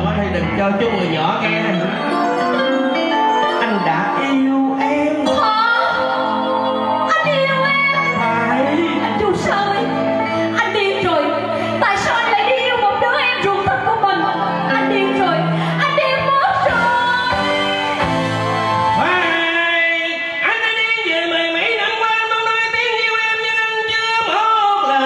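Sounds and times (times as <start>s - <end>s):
man singing: 0.0s - 5.6s, 7.9s - 10.1s, 19.0s - 25.0s
instrumental accompaniment: 0.0s - 22.9s
woman singing: 5.1s - 17.7s.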